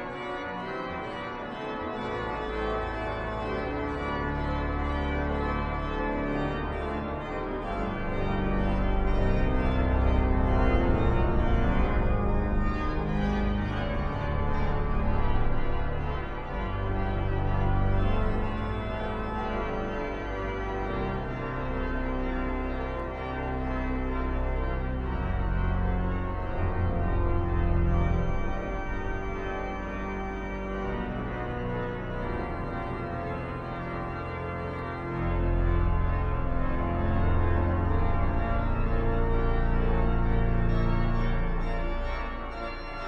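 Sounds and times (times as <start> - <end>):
pipe organ playing: 0.0 - 43.0.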